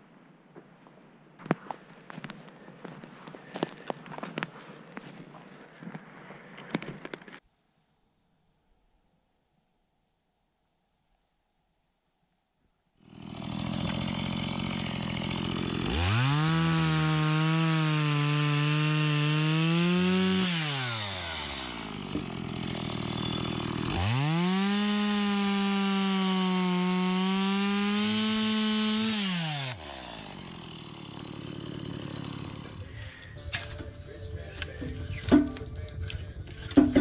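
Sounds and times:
chainsaw idling and revving: 0:13.0 - 0:33.0
chainsaw cutting through log: 0:13.0 - 0:33.2.

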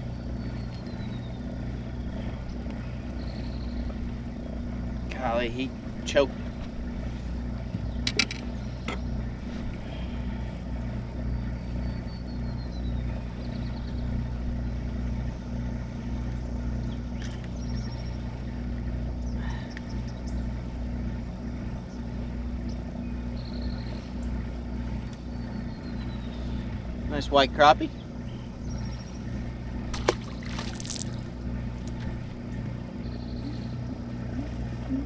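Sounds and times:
low motor hum: 0:00.0 - 0:35.0
fishing tackle clicks and rattles: 0:08.0 - 0:08.5.

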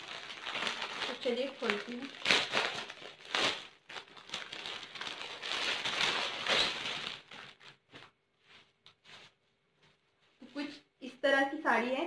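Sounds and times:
plastic packet crinkling: 0:00.0 - 0:08.2.

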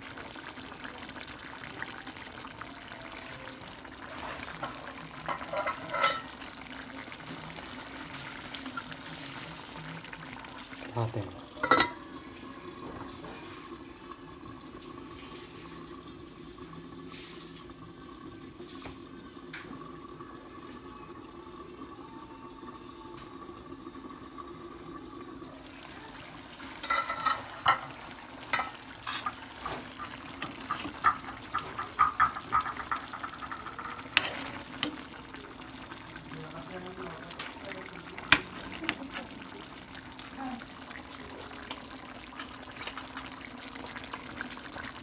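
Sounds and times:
stew bubbling in a pan: 0:00.0 - 0:45.0.

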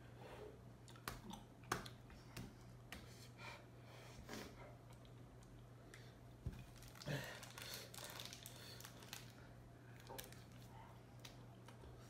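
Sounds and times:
plastic wrapper crinkling: 0:06.6 - 0:11.4.

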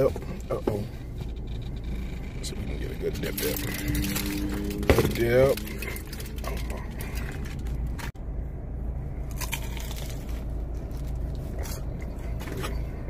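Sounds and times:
steady low hum: 0:00.0 - 0:13.0
person chewing and biting: 0:09.2 - 0:12.2.

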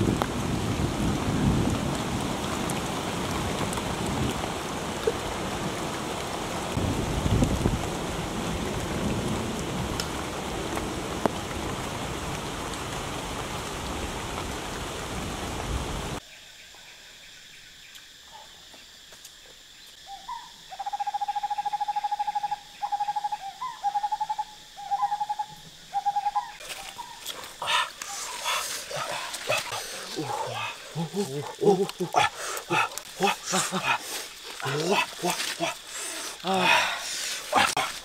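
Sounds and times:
rain hissing: 0:00.0 - 0:16.2, 0:25.6 - 0:38.0.

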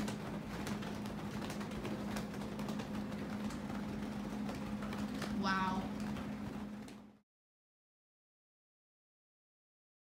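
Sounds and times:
ceiling fan humming: 0:00.0 - 0:07.2.

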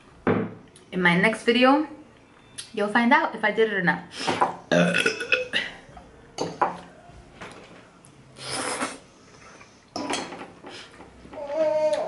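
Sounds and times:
slurping noodles: 0:08.4 - 0:09.8.

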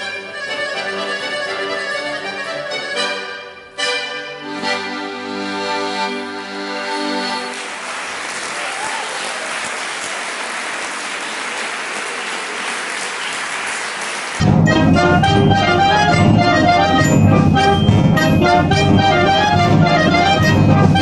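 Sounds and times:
accordion chord: 0:00.0 - 0:07.6, 0:14.4 - 0:21.0
audience applause: 0:07.5 - 0:14.5.

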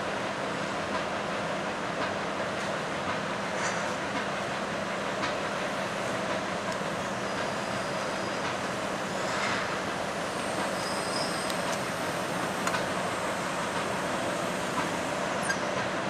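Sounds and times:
crane engine running: 0:04.7 - 0:16.0.

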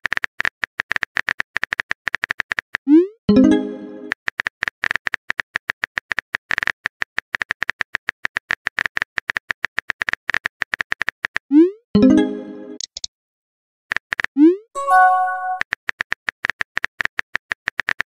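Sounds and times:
short chime: 0:14.8 - 0:15.6.

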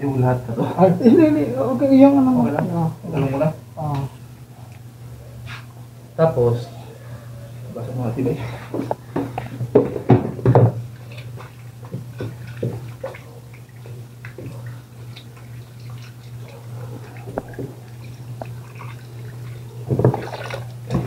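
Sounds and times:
steady low hum: 0:00.0 - 0:21.0
food handling knocks and clicks: 0:08.7 - 0:12.9
wet drips: 0:10.9 - 0:21.0.

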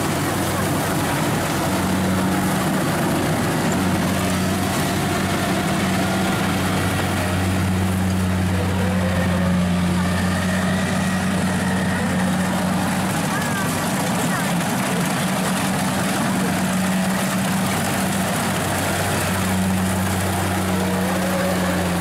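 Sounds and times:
combine harvester engine running: 0:00.0 - 0:22.0.

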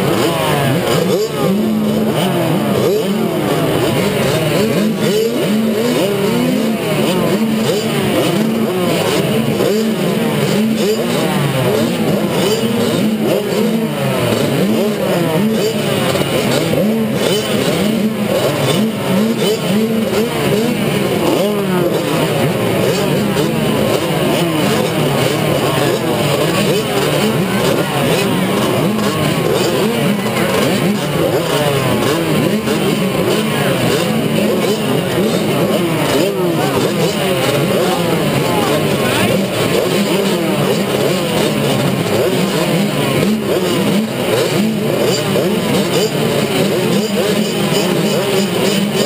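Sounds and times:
minibike engines revving: 0:00.0 - 0:49.0.

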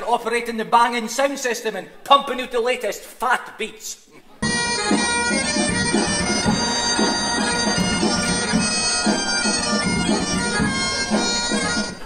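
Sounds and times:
bagpipe music: 0:04.4 - 0:12.0
steady drum beat: 0:04.4 - 0:12.0.

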